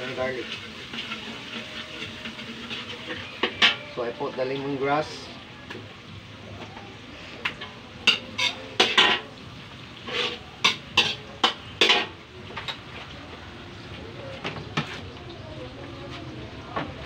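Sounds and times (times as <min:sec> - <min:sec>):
metal utensil scraping a wok: 0:00.0 - 0:04.4, 0:07.2 - 0:12.8
vegetables sizzling in hot oil: 0:00.0 - 0:14.0.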